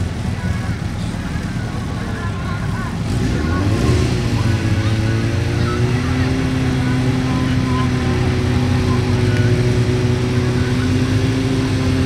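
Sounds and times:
motorcycle engine revving steadily: 0:00.0 - 0:12.0.

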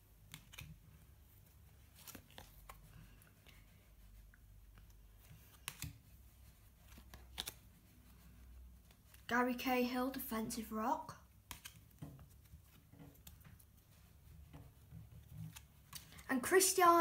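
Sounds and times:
trading cards clicking and sliding: 0:00.2 - 0:00.8, 0:01.9 - 0:03.4, 0:04.7 - 0:06.2, 0:06.8 - 0:09.3, 0:11.4 - 0:13.7, 0:15.2 - 0:16.3.

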